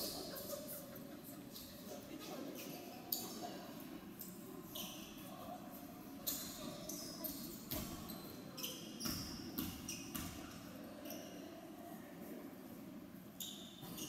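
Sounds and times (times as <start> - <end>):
shoes squeaking on court: 4.7 - 5.3, 6.2 - 11.4.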